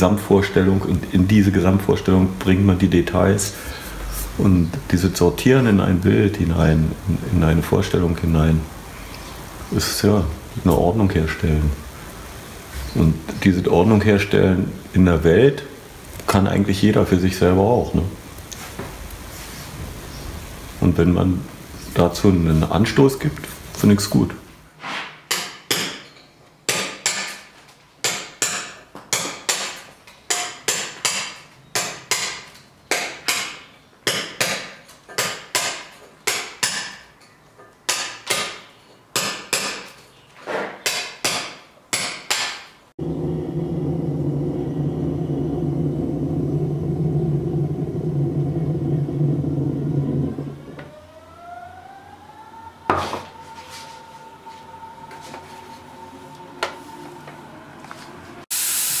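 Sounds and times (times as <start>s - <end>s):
hammer on chisel cutting stone: 26.7s - 27.3s, 28.0s - 37.0s, 37.9s - 39.9s, 40.8s - 42.6s
espresso machine hissing: 43.0s - 50.8s, 58.5s - 59.0s
espresso machine humming: 43.0s - 50.8s
rising whistle: 43.0s - 57.8s.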